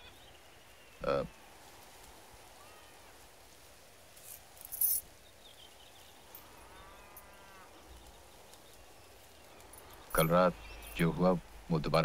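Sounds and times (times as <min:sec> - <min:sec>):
faint animal call: 0:02.5 - 0:03.2
keys jingling: 0:09.8 - 0:11.1.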